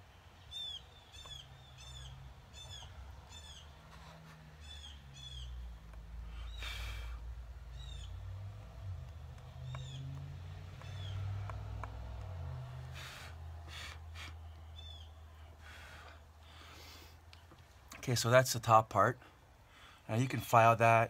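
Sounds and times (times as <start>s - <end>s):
bird chirping: 0.2s - 15.5s.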